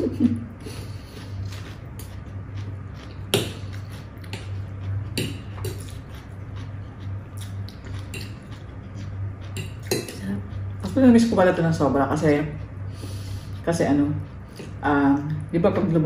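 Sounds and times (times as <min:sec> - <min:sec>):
low hum: 0:00.0 - 0:16.0.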